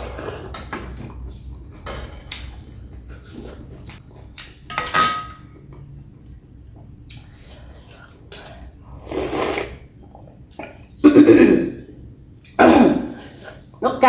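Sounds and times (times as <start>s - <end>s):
slurping noodles: 7.2s - 10.0s.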